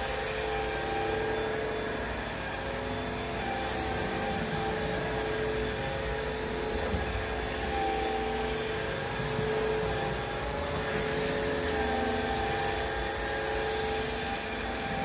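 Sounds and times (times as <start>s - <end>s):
floor vacuum motor whine: 0.0s - 15.0s.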